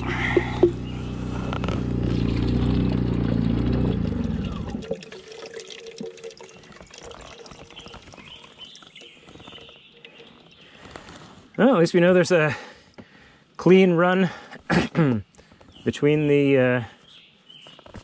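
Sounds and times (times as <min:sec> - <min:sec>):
water pouring into plastic jar: 0:01.9 - 0:11.6.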